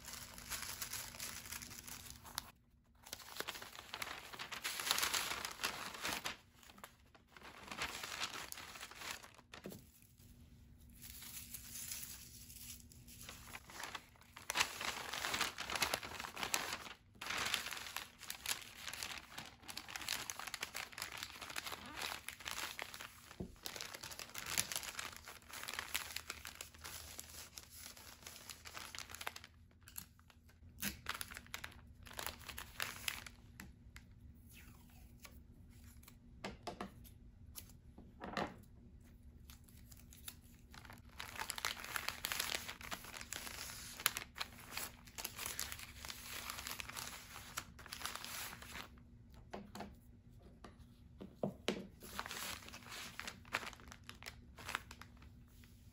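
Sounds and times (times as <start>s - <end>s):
paper bags rustling and crinkling: 0.0s - 10.1s, 10.8s - 29.6s, 31.0s - 33.4s, 40.7s - 49.0s, 52.0s - 55.9s.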